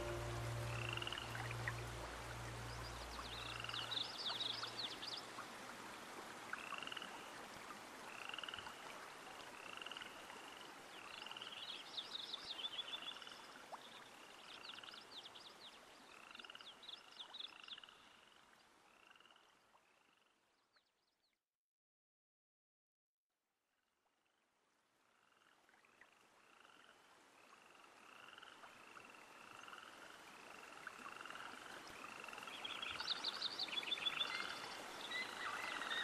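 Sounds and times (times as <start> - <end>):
soft low music tones: 0.0 - 6.3.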